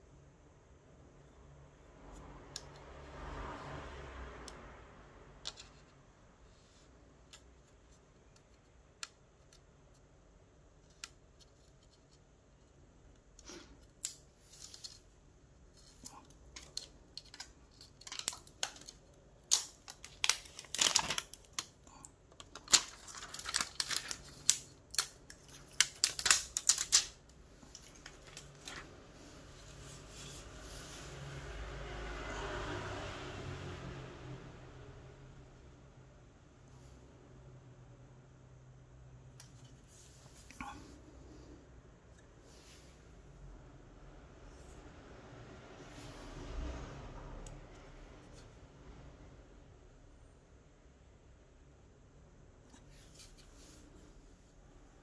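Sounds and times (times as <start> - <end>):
packaging handling clicks: 16.6 - 21.8, 22.4 - 28.8
packaging crackling: 16.6 - 28.9.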